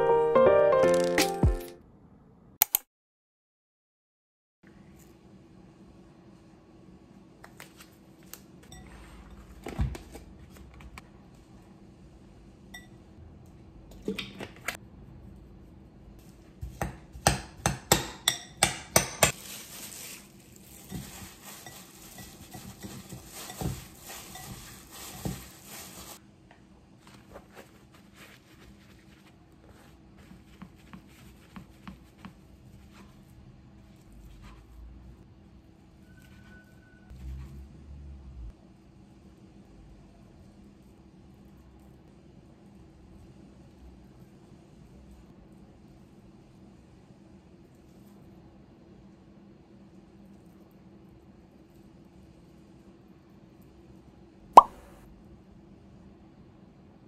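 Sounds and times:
stirring minced meat: 20.8s - 26.2s.

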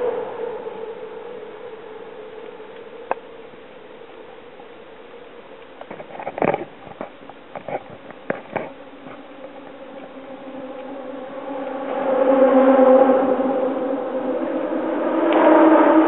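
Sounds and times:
motor vehicle hum: 0.0s - 16.0s
bicycle knocks and rattles: 5.8s - 10.0s.

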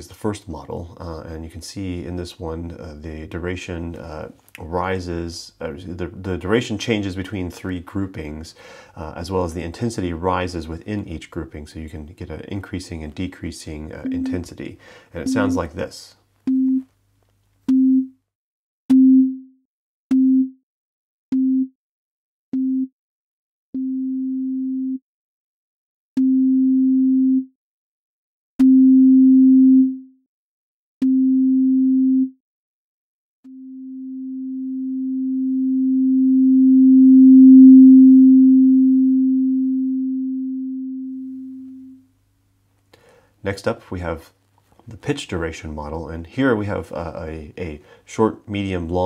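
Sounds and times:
sine tone beeps: 14.0s - 14.5s, 15.2s - 15.8s, 16.5s - 16.9s, 33.5s - 42.0s.

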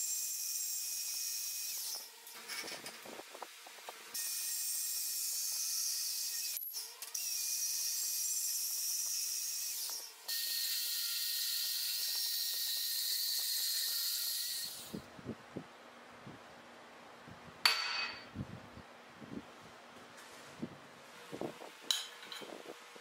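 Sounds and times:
band saw cutting steel tube: 4.1s - 15.0s.

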